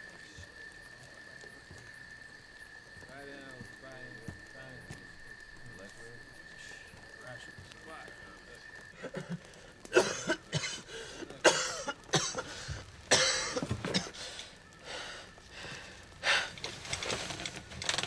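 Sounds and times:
person coughing: 9.0 - 12.5, 13.1 - 14.1.

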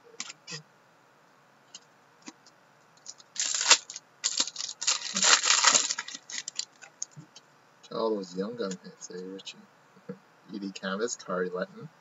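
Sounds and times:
foil wrapper tearing and crinkling: 3.1 - 6.9.

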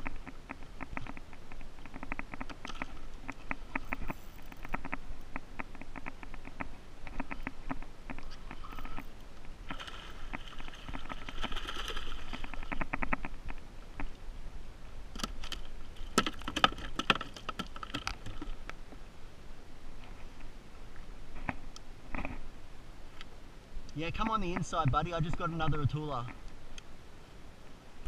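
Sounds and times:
fish splashing in water: 9.7 - 13.1.

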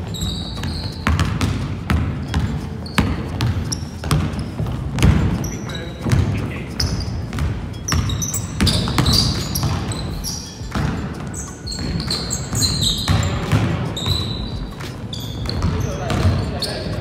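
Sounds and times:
basketball bouncing on wood floor: 0.0 - 17.0
shoes squeaking on wood: 0.0 - 17.0.

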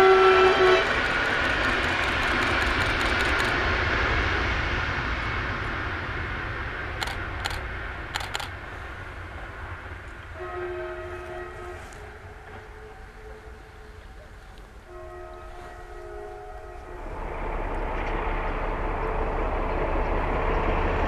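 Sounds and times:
faint train horn: 0.0 - 1.2, 10.2 - 20.2
train wheels rumbling on track: 0.0 - 21.0
sharp clicks: 1.6 - 3.6, 7.0 - 8.6.

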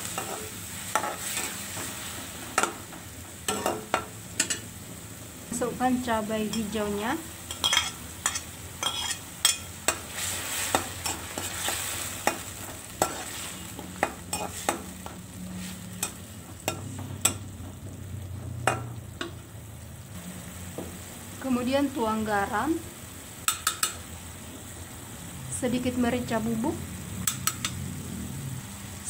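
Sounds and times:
metal spatula scraping wok: 0.0 - 4.6, 7.4 - 17.9
food sizzling: 0.0 - 29.0.

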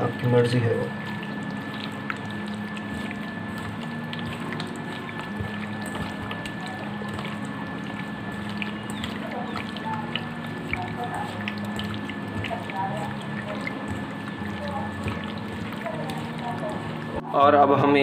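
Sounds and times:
steady background hum: 0.0 - 18.0
hand squelching raw chicken: 1.0 - 17.2
small wet clicks: 1.0 - 17.2.

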